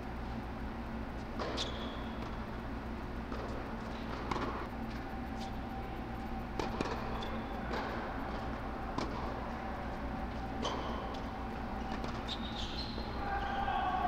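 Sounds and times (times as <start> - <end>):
blower hum: 0.0 - 14.0
shoe squeak: 1.4 - 2.2, 11.8 - 13.9.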